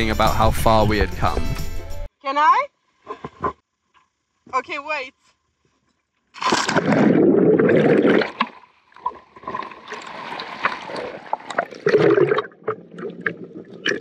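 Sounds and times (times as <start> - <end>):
seawater splashing and bubbling: 6.4 - 14.0.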